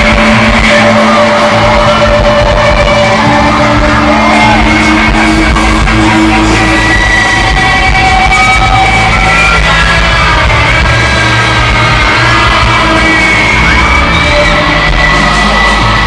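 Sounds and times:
electric guitar: 0.0s - 16.0s
live rock band: 0.0s - 16.0s.

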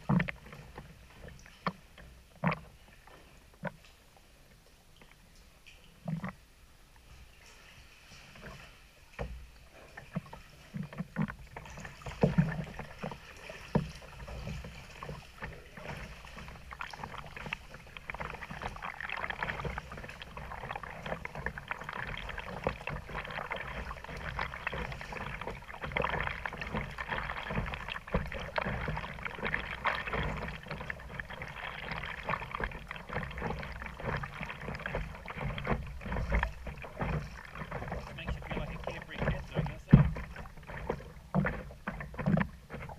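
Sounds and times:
water splashing around kayak: 0.0s - 42.9s
sharp splashes or knocks: 10.1s - 42.9s.

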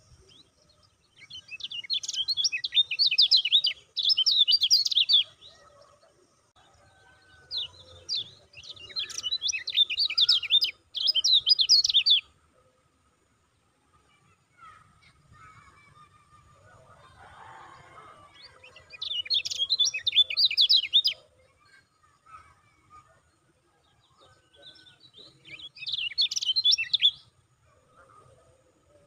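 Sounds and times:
bird chattering chirps: 1.4s - 5.6s, 8.1s - 12.2s, 18.4s - 21.2s, 25.3s - 27.2s.

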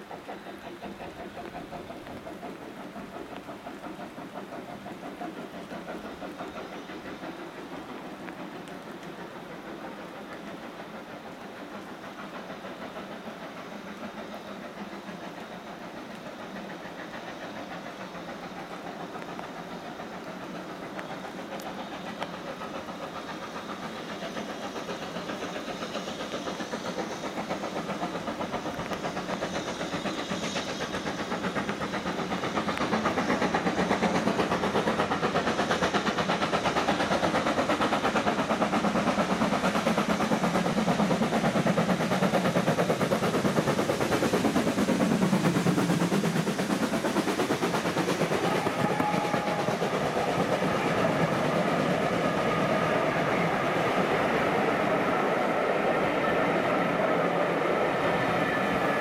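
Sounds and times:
steam locomotive exhaust beat: 0.0s - 59.0s.

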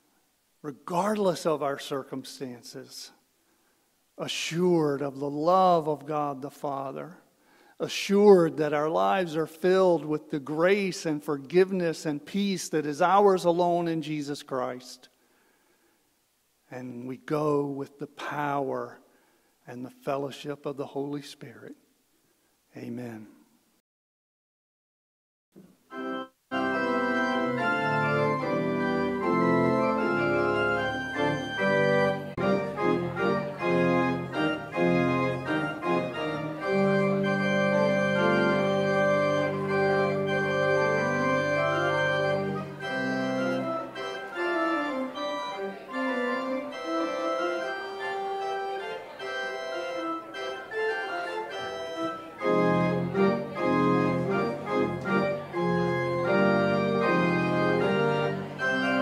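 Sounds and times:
church organ chords: 0.6s - 3.1s, 4.2s - 7.2s, 7.8s - 15.0s, 25.9s - 59.0s.

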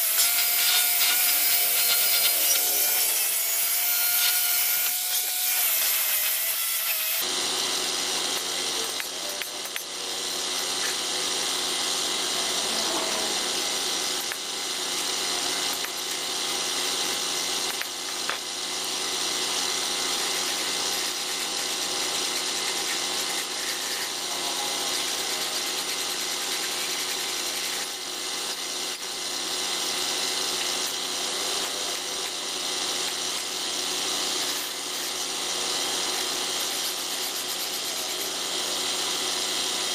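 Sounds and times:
angle grinder scraping rust: 0.0s - 39.9s
compressor hum: 7.2s - 39.9s
paint spray gun hissing: 13.2s - 39.9s.

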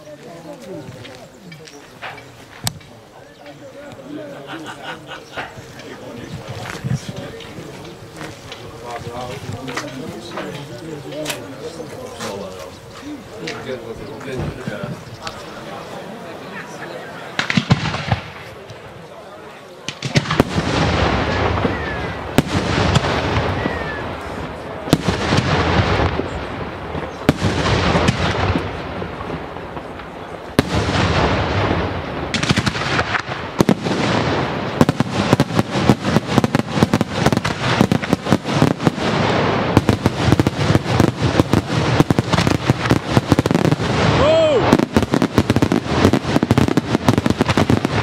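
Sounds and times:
firework shells bursting: 17.4s - 18.9s, 19.9s - 48.0s.

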